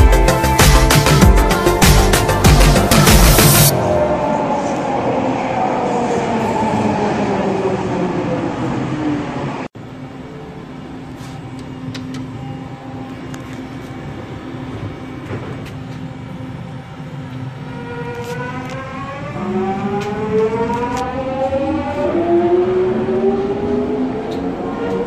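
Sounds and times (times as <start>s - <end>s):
elevator hum: 0.0s - 25.0s
train motor whine: 9.8s - 25.0s.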